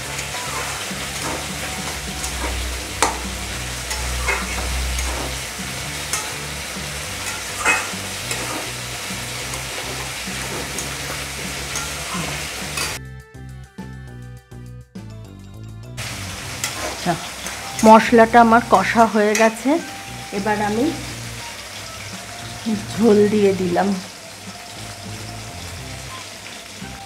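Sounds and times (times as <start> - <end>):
metal spatula scraping pan: 0.0 - 13.0
vegetables sizzling in oil: 0.0 - 13.0, 16.0 - 27.0
music: 0.0 - 27.0
spatula knocking pan: 7.2 - 8.7.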